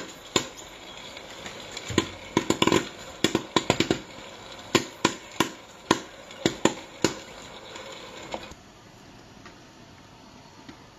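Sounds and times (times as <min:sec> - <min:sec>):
popcorn kernels popping: 0:00.0 - 0:08.6
popcorn maker running: 0:00.0 - 0:08.6.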